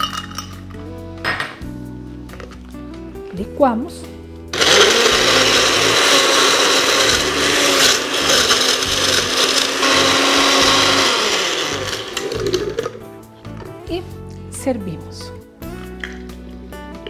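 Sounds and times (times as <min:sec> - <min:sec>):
countertop blender running: 0:04.6 - 0:12.9.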